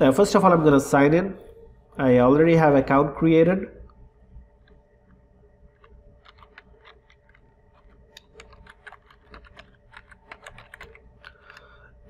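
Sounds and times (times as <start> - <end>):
keyboard typing: 3.8 - 12.0.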